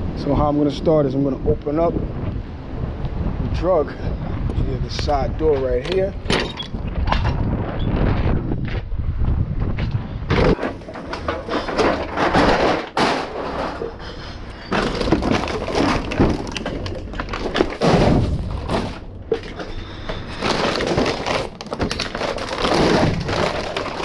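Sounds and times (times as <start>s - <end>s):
bottles and cans clinking in bags: 10.4s - 24.0s.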